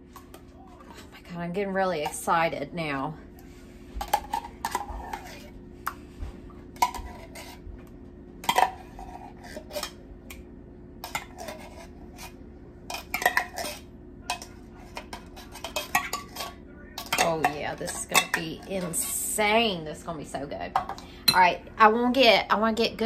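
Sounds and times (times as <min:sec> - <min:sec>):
spoon scraping a dish: 0:03.4 - 0:06.2, 0:06.8 - 0:07.7, 0:08.4 - 0:10.0, 0:11.0 - 0:19.2.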